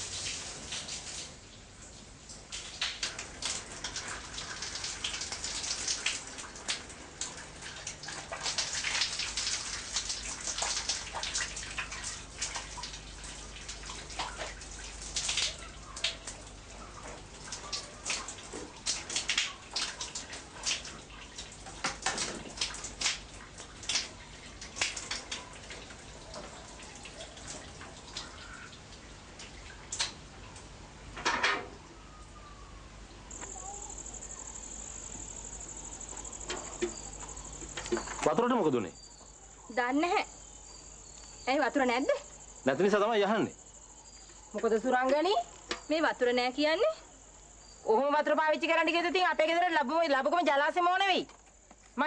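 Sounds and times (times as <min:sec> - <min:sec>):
water splashing and pattering: 0:00.0 - 0:31.4.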